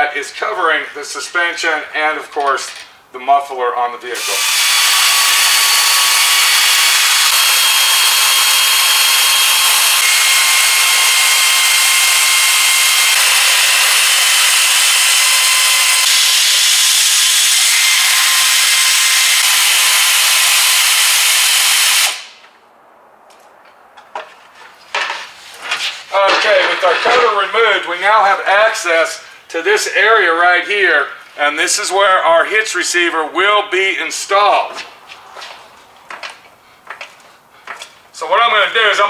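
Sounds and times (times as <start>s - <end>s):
pneumatic air tool whirring: 4.2s - 22.4s.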